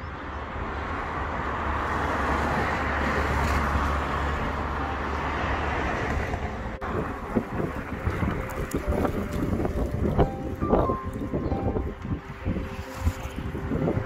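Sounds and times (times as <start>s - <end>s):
wind buffeting microphone: 6.0s - 14.0s.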